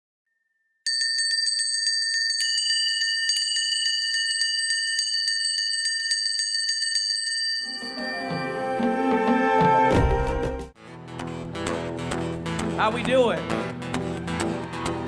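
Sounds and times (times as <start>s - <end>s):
bell-like ringing tones: 0.8s - 9.0s.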